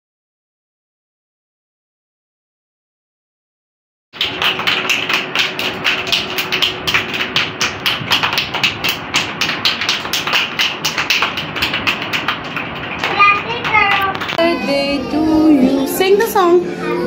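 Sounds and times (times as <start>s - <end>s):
children clapping: 4.2s - 14.7s.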